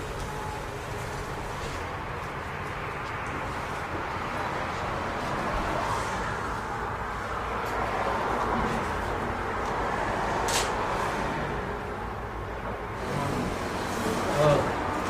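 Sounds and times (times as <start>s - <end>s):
steady background noise: 0.0s - 15.0s.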